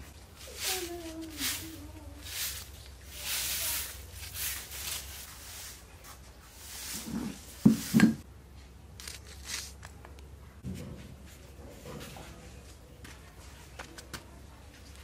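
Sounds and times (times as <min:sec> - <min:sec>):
rustling: 0:00.0 - 0:08.2.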